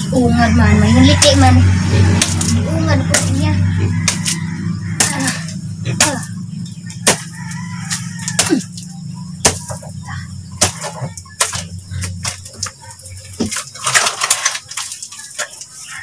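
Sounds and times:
steady low hum: 0.0s - 13.8s
soil scraping and thudding: 6.9s - 16.0s
chickens clucking: 14.6s - 16.0s.

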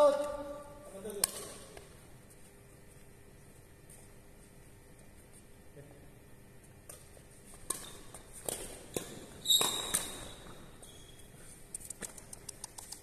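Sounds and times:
footsteps: 1.5s - 5.6s
racket striking shuttlecock: 6.8s - 10.6s
shoe squealing on court floor: 9.0s - 11.4s.

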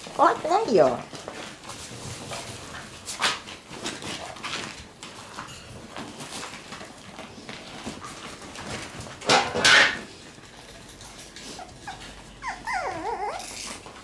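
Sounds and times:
puppies scrambling: 0.0s - 14.0s
puppy whining: 11.2s - 14.0s.

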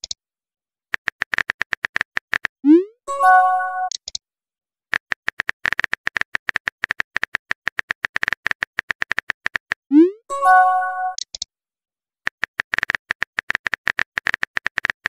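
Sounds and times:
phone keyboard clicks: 4.9s - 9.8s, 12.3s - 15.0s.

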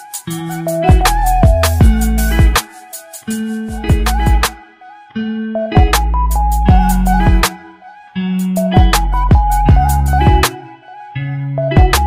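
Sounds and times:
music with bass and drum beat: 0.0s - 4.6s, 5.7s - 7.6s, 8.4s - 10.6s, 11.7s - 12.0s.

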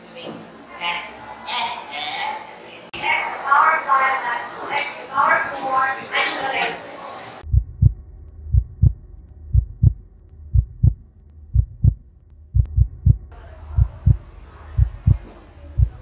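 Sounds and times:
heartbeat thumps: 7.4s - 16.0s
low hum: 7.4s - 16.0s.

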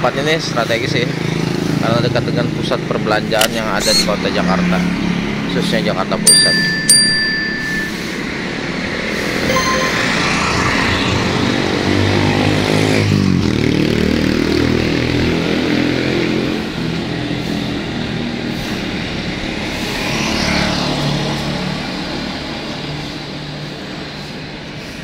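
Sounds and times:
vehicles passing: 0.0s - 25.0s.

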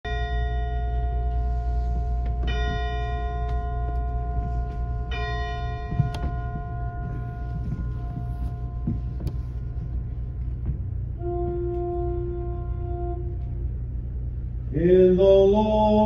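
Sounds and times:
church bell ringing: 0.0s - 10.4s
wind rumble on microphone: 3.8s - 16.0s.

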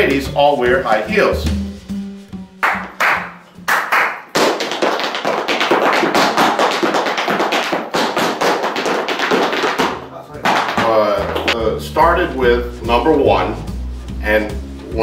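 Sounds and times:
tap shoes on hard floor: 4.2s - 11.6s.

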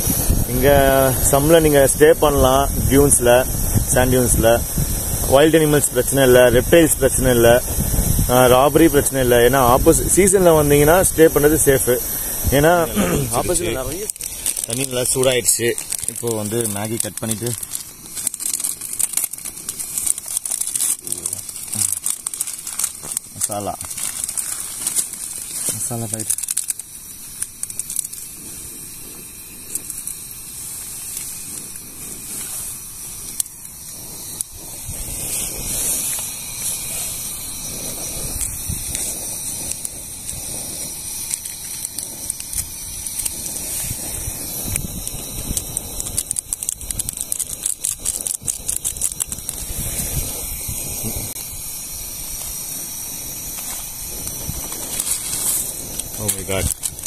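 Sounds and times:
gas stove hissing: 0.0s - 57.0s
small clicks: 41.2s - 50.4s.

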